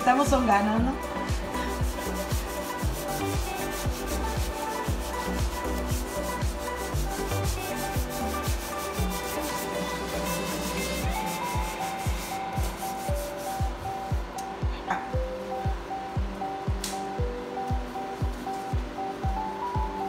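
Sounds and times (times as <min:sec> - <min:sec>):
background music with steady beat: 0:00.0 - 0:20.0
sponge rubbing on wooden door: 0:01.6 - 0:13.8.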